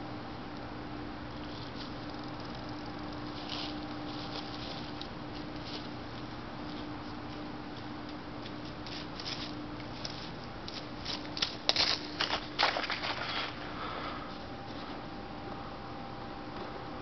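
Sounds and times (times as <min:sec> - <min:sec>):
faint steady hum: 0:00.0 - 0:17.0
dry leaves crunching underfoot: 0:03.2 - 0:07.4, 0:08.5 - 0:13.8.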